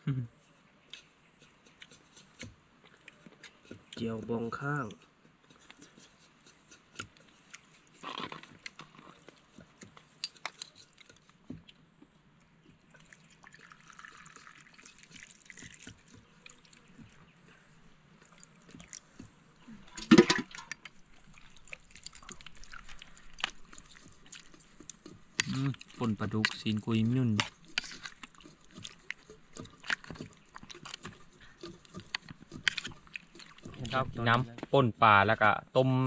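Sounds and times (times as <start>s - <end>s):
spoon scraping plastic bowl: 4.9s - 11.4s, 19.8s - 34.5s
broth pouring into bowl: 12.9s - 17.0s.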